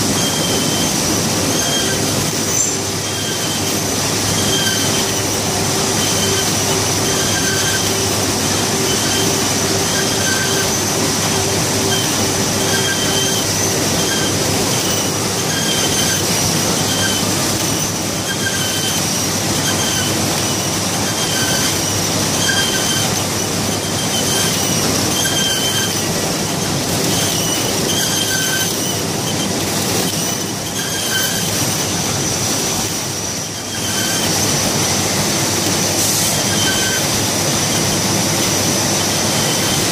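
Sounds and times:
short squeals: 0.0 - 35.3, 35.9 - 39.9
printing press clattering and whining: 0.0 - 39.9.

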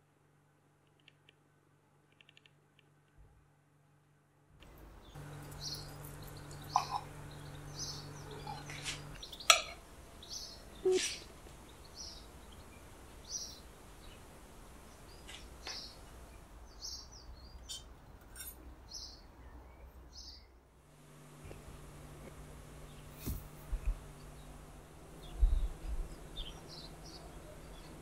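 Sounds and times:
sharp clicks: 2.1 - 3.2
small bird chirping: 5.0 - 14.2, 14.9 - 20.5, 22.8 - 28.0.

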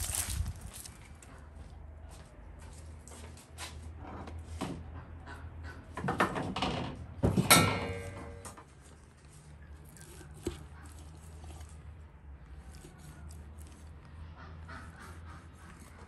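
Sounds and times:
loud ringing metal clank: 7.4 - 8.6.

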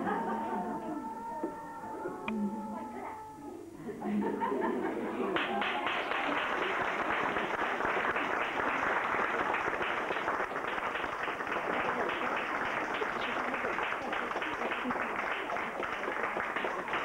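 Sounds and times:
audience applauding: 5.3 - 17.0.

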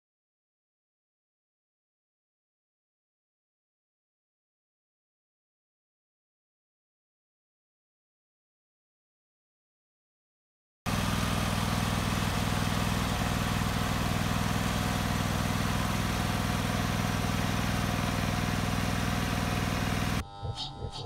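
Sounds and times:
lawn tractor engine running: 10.9 - 20.2.

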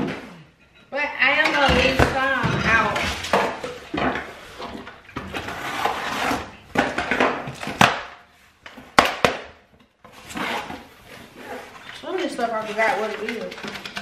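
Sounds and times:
dishes knocking and clinking: 13.1 - 14.0.

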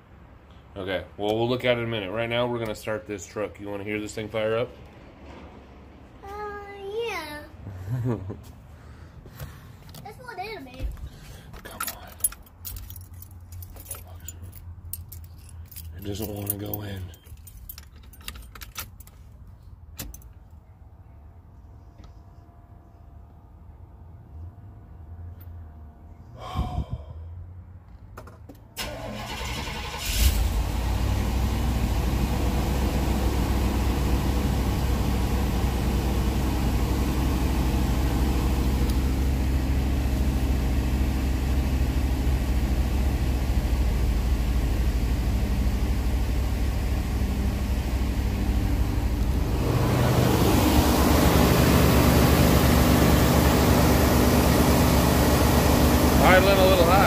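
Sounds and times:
engine cranking and catching: 28.2 - 30.6
engine at high idle: 29.2 - 57.0.

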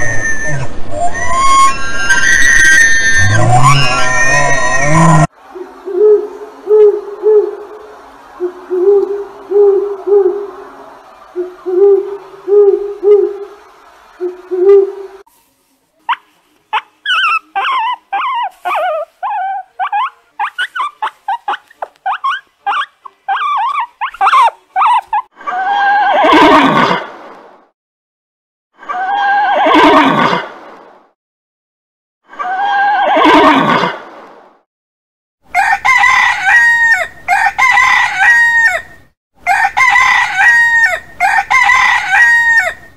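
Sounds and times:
owl hooting: 0.0 - 7.7
horse whinnying: 1.4 - 5.3, 29.3 - 30.5, 32.8 - 34.0
guinea pig squeaking: 16.1 - 25.2.

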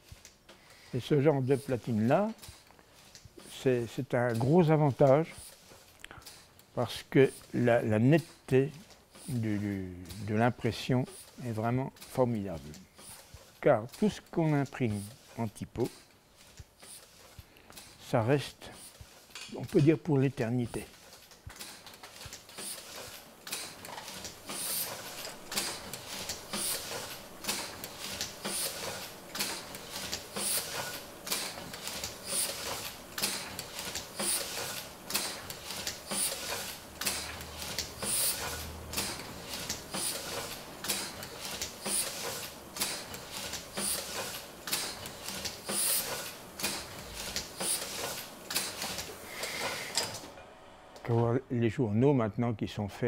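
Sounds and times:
printing press clacking: 1.0 - 50.4.

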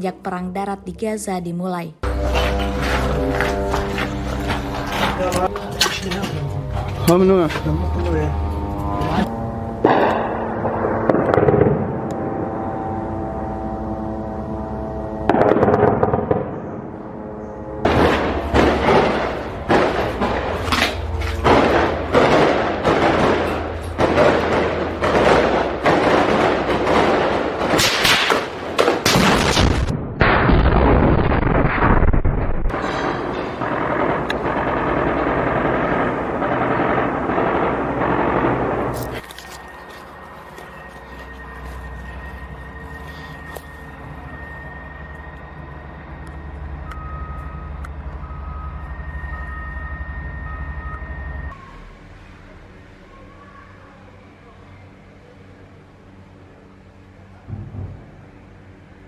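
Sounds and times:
background music drone: 0.0 - 28.8, 32.7 - 53.2
gunfire and blasts: 9.8 - 12.0, 17.9 - 39.0.

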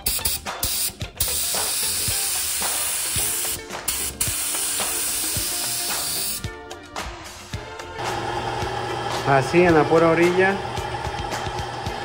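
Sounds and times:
spray gun hissing: 0.0 - 6.5.

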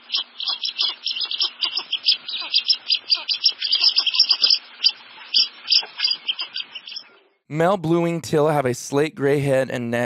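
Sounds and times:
duck calling: 0.0 - 7.2.

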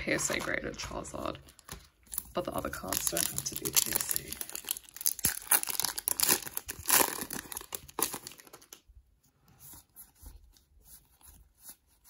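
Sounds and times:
foil wrapper crinkling and tearing: 1.5 - 8.8.

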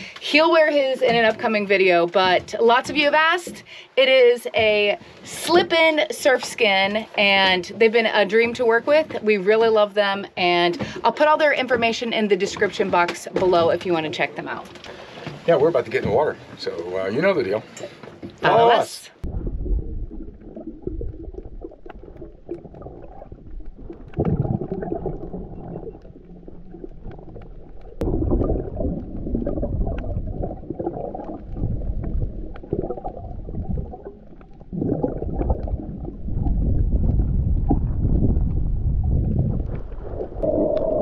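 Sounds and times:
underwater rushing rumble: 19.2 - 41.0.

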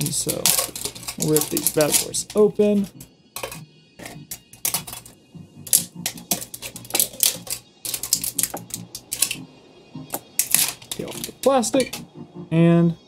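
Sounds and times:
plastic shrink-wrap crinkling: 0.0 - 2.4, 6.2 - 9.4, 10.4 - 11.5.

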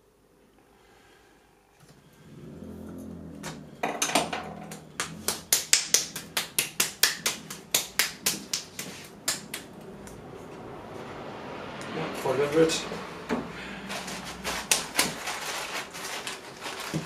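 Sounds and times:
sharp hand slaps: 4.7 - 10.2.

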